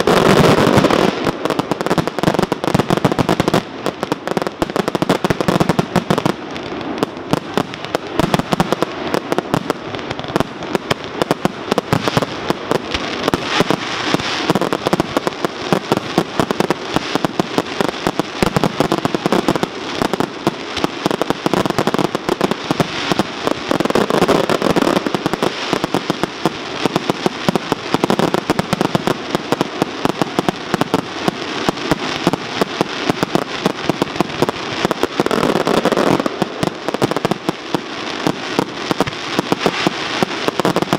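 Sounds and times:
fireworks bangs and crackles: 0.0 - 40.9.

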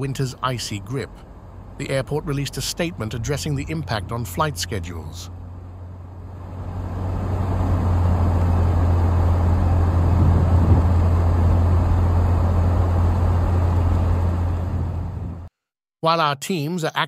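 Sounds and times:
car engine and tyre rumble: 0.0 - 15.5.

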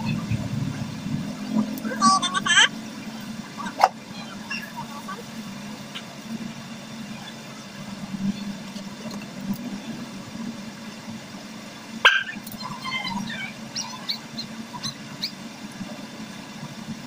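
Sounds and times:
small dogs whining and yipping: 12.5 - 15.4.

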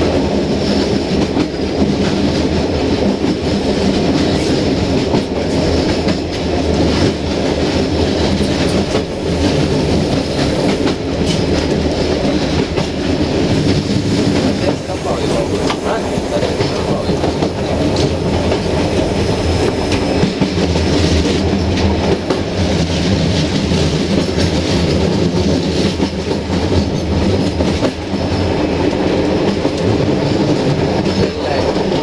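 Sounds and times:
train wheels rumbling on rail: 0.0 - 32.0
wheels clacking over rail joints: 0.0 - 32.0.

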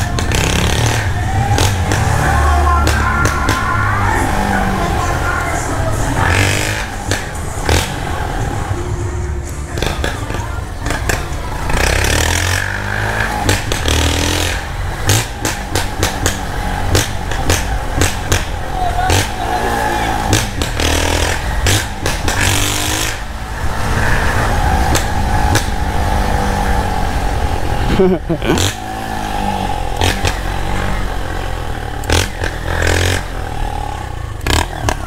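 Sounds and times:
exhaust sharp cracks: 0.0 - 8.2
motorcycle engine revving: 0.0 - 35.0.

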